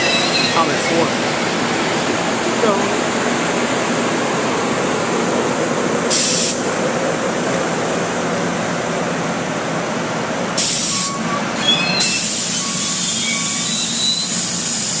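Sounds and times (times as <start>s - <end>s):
wheel and brake squeals: 0.0s - 1.1s, 10.6s - 15.0s
train wheels rumbling on rail: 0.0s - 15.0s
high hiss: 6.1s - 6.7s.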